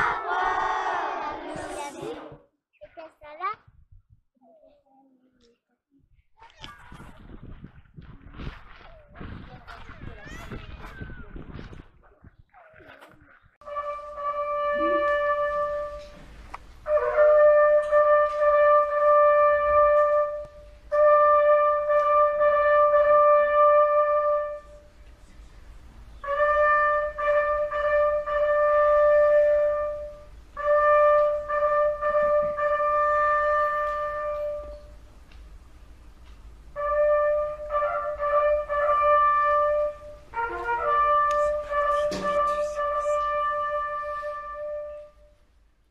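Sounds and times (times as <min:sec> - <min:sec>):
brass instrument long notes: 0:13.6 - 0:24.9, 0:26.2 - 0:35.0, 0:36.7 - 0:45.4.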